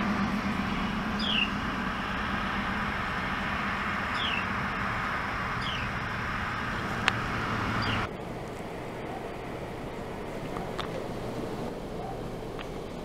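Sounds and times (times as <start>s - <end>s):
wren chirping: 0.4s - 8.1s.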